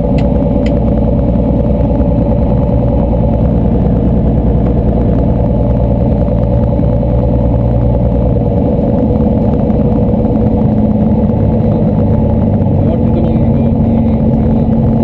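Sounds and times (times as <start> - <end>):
propeller aircraft engine running: 0.0 - 15.0.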